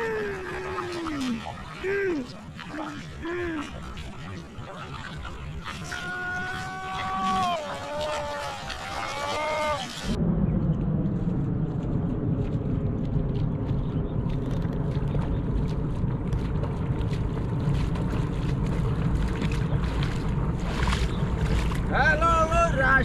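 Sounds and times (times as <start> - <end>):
splashing steps in shallow water: 0.0 - 10.2, 12.4 - 23.0
wind rumble on microphone: 0.0 - 23.0.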